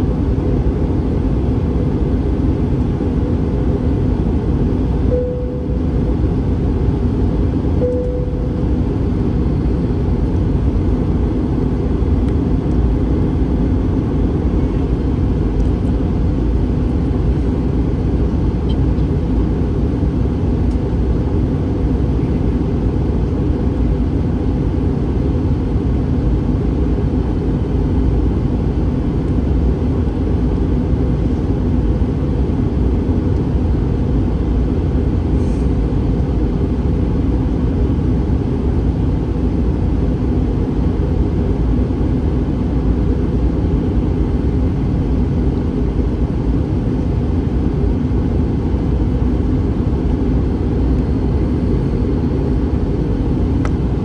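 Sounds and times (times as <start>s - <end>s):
airliner cabin rumble: 0.0s - 54.0s.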